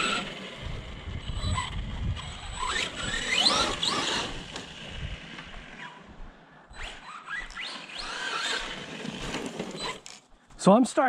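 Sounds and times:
electric motor whine: 0:00.0 - 0:06.1, 0:06.7 - 0:10.2
low rumble of tyres: 0:00.0 - 0:06.1.

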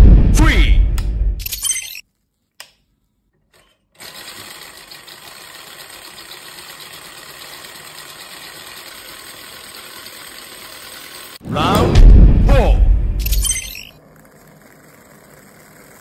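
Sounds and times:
stirling engine whirring: 0:04.0 - 0:16.0.

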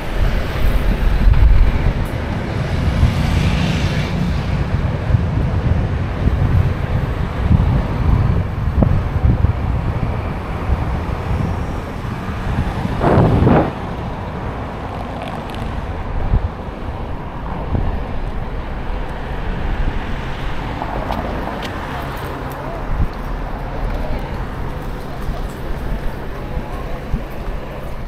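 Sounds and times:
low rumbling road noise: 0:00.0 - 0:28.0
wind buffeting microphone: 0:00.0 - 0:28.0
whoosh: 0:13.0 - 0:14.4.

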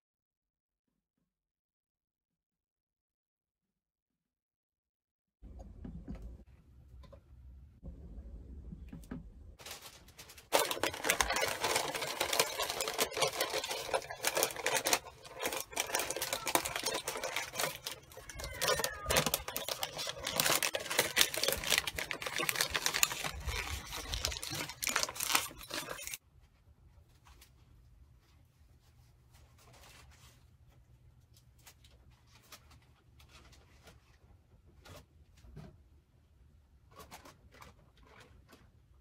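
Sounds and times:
paper crinkling and rustling: 0:09.6 - 0:26.2, 0:28.8 - 0:35.1.

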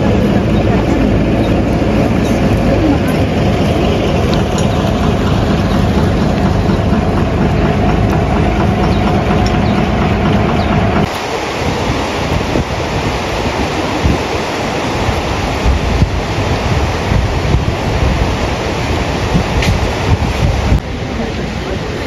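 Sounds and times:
windy hiss: 0:11.0 - 0:22.0.

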